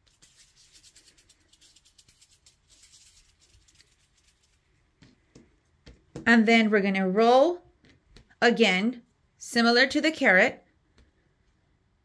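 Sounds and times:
palms rubbing clay: 0.0 - 6.3.

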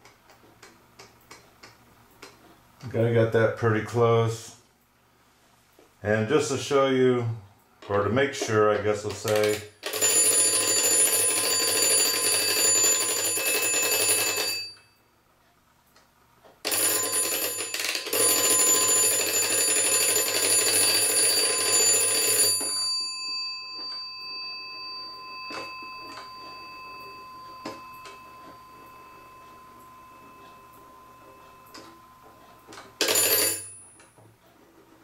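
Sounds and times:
alarm clock bell ringing: 9.3 - 15.0, 16.7 - 34.2.

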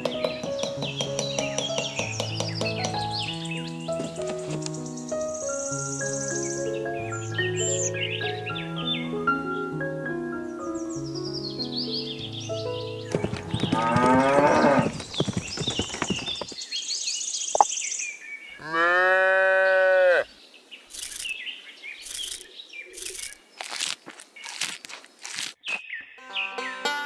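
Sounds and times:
cows mooing: 13.8 - 14.9, 18.6 - 20.2.

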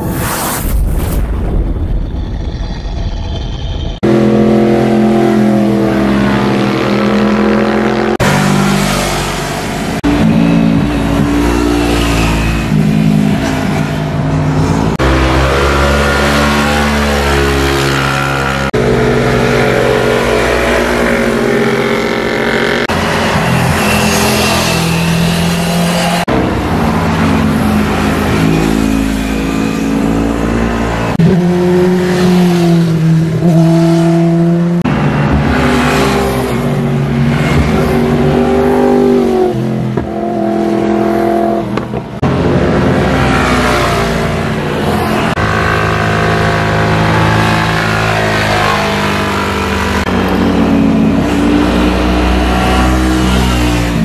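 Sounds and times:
motor scooter engines passing: 14.6 - 54.0.

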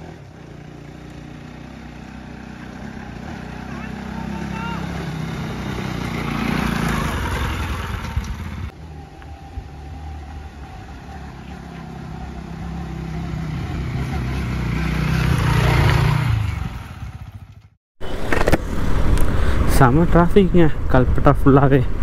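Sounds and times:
motorcycle engine running: 0.0 - 17.8
wind and road noise: 0.0 - 22.0.

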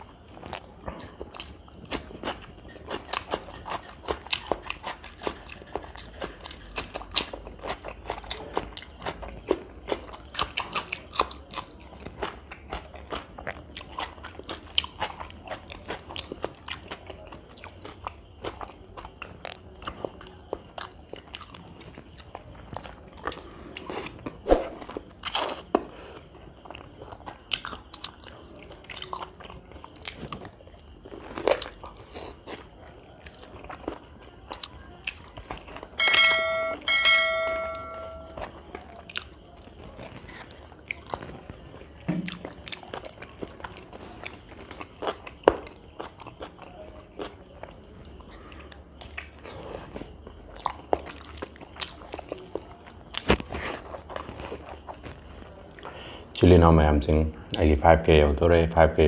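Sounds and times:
person chewing food: 0.0 - 36.0, 37.6 - 56.4
short ringing chime: 36.0 - 38.4.

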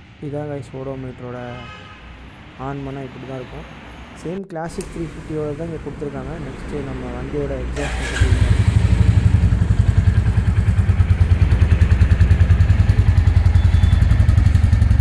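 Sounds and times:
motorcycle engine idling: 7.8 - 15.0.

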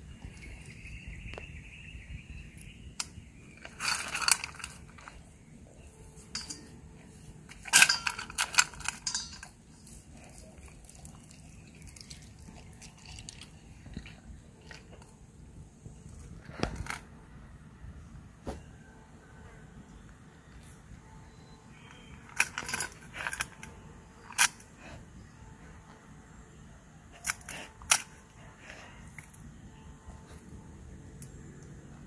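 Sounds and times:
dog crunching and chewing food: 10.1 - 15.0.

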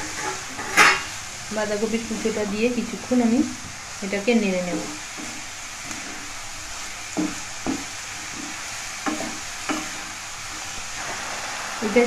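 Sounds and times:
vegetables sizzling in pan: 0.0 - 12.0
spatula knocking against pan: 7.1 - 10.0.

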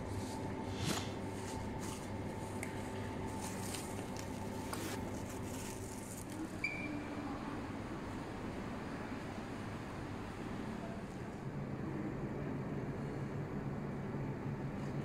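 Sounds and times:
airport terminal hum: 0.0 - 15.0.

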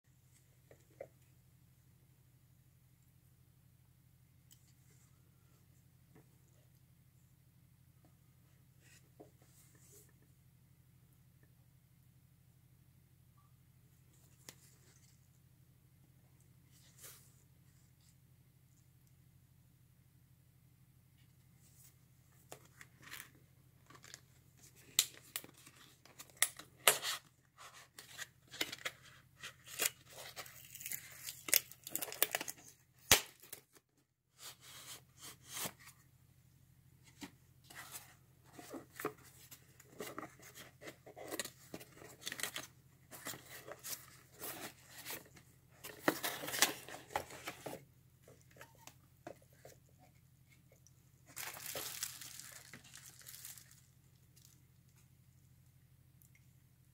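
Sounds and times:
plastic wrapping crinkling: 51.3 - 54.6.

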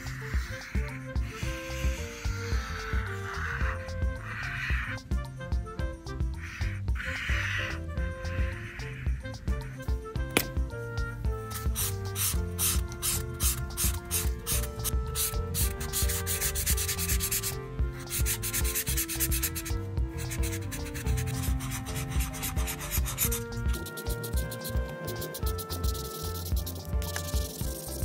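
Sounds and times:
marker scribbling on paper: 0.0 - 4.9, 11.4 - 28.0
background music: 0.0 - 28.0.

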